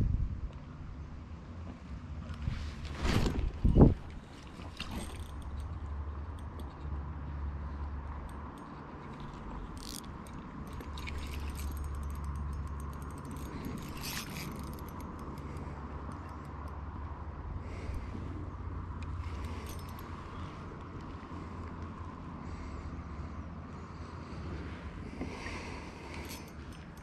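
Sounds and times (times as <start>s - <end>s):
wind rumble on microphone: 0.0s - 8.4s
fishing reel whirring and clicking: 4.7s - 7.0s, 7.6s - 18.2s, 19.0s - 21.1s, 25.4s - 27.0s.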